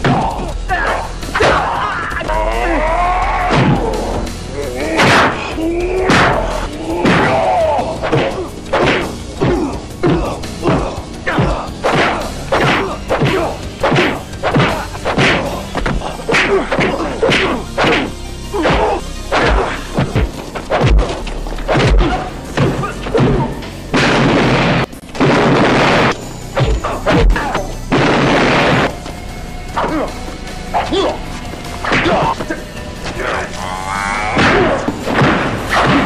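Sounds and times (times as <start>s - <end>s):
action score music: 0.0s - 36.0s
crashing noises: 5.0s - 29.2s, 34.3s - 36.0s
punches landing: 5.0s - 29.2s, 34.3s - 36.0s.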